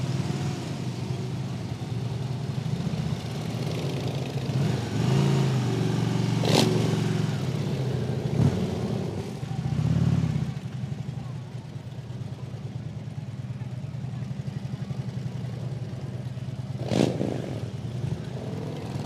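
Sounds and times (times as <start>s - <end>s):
other motorcycle engines: 0.0s - 19.0s
motorcycle engine revving: 2.6s - 11.0s, 15.0s - 19.0s.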